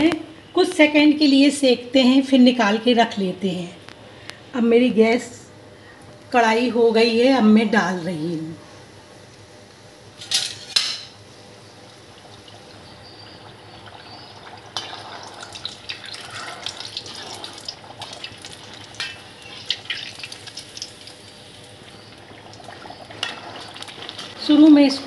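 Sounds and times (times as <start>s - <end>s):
hot oil sizzling and crackling: 10.2s - 24.6s.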